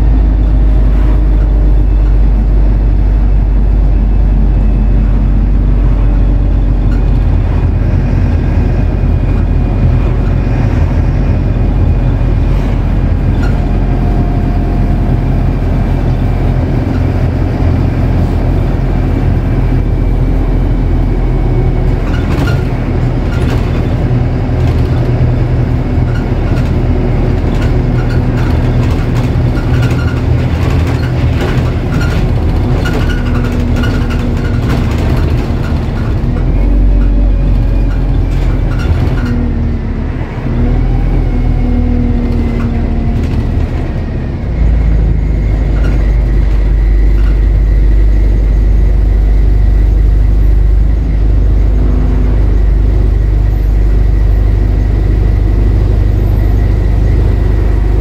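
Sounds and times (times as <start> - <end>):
bus engine running: 0.0 - 58.0
bodywork rattles and knocks: 21.5 - 39.6.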